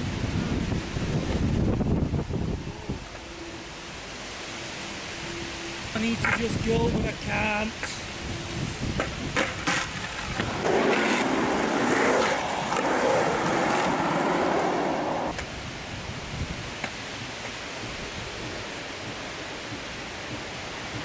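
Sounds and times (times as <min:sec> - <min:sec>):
steady hiss: 0:00.0 - 0:21.0
skateboard rolling on concrete: 0:06.1 - 0:06.6, 0:07.7 - 0:21.0.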